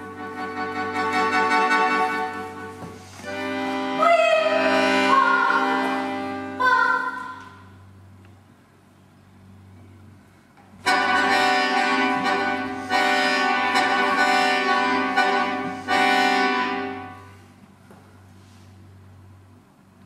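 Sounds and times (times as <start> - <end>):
accordion sustained chords: 0.0 - 8.2, 10.8 - 17.6.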